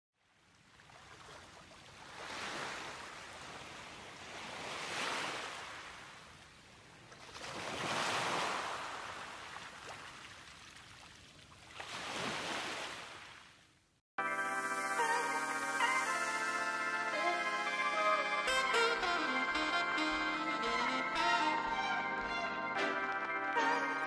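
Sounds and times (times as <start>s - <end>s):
small sea waves washing in: 0.6s - 13.5s.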